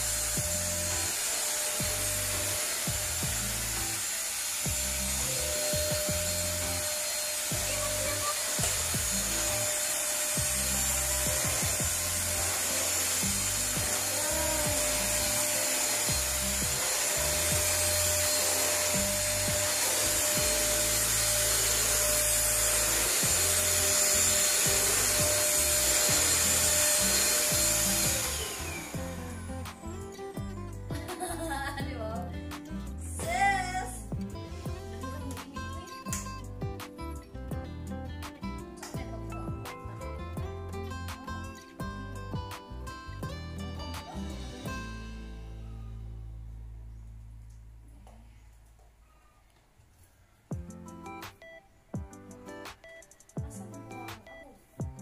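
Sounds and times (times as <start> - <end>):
stick vacuum cleaner running: 0.0 - 31.3.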